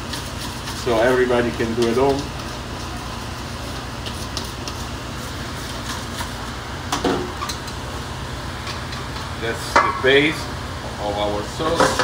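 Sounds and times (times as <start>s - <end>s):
whisk scraping metal bowl: 0.0s - 6.6s
steady kitchen hiss: 0.0s - 12.0s.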